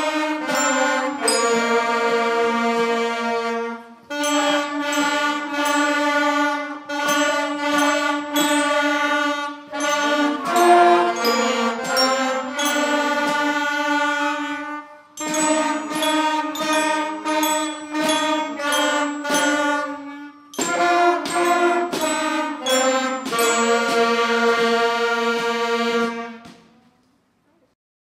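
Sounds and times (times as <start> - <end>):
band playing held chords: 0.0 - 26.5
snare drum strokes: 9.7 - 26.8.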